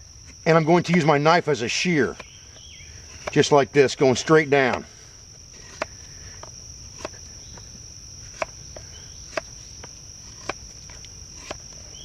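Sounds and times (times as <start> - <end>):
high insect trill: 0.0 - 12.0
knife shaving wood cracks: 6.9 - 7.6, 10.2 - 11.9.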